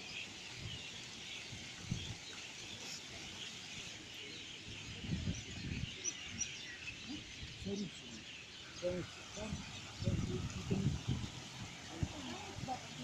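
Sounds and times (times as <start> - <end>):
birds chirping in chorus: 0.0 - 13.0.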